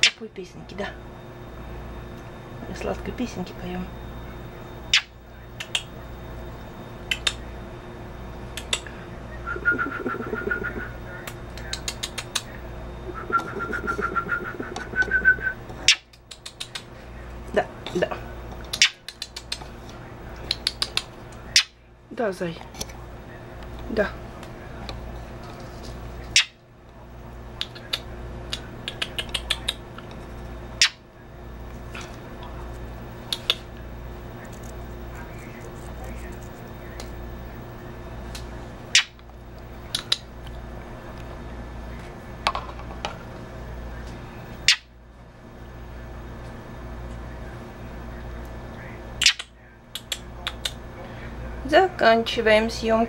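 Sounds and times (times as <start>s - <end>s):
bird trilling: 9.4s - 11.0s, 13.0s - 16.1s, 44.6s - 44.9s
bird clicking calls: 9.6s - 12.6s, 15.9s - 16.9s, 18.6s - 19.6s, 20.5s - 21.7s, 26.3s - 26.6s, 27.6s - 29.8s, 39.0s - 39.2s, 39.9s - 40.3s, 44.6s - 44.9s, 49.2s - 50.8s.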